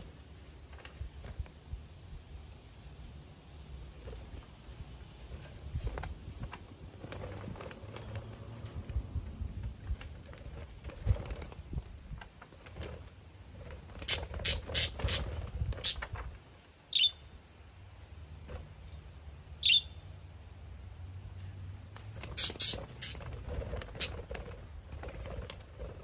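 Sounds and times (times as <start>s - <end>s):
low steady rumble: 0.0s - 14.7s
budgerigars chirping: 14.0s - 16.0s, 16.9s - 17.3s, 19.6s - 20.0s, 22.2s - 23.3s.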